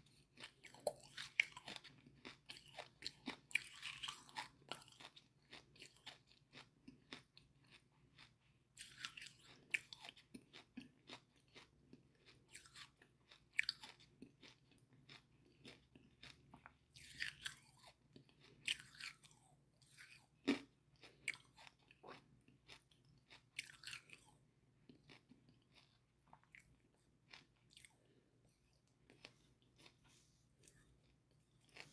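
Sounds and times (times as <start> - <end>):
person chewing crunchy charcoal: 0.0 - 31.9.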